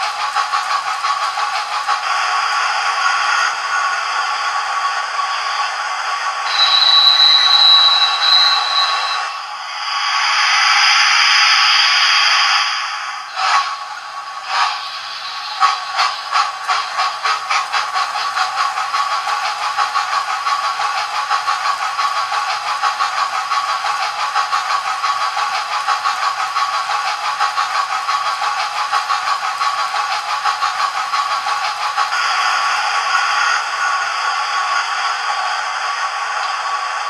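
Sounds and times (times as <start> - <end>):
steam hiss: 0.0 - 23.0
steam locomotive chuffing: 0.0 - 37.0.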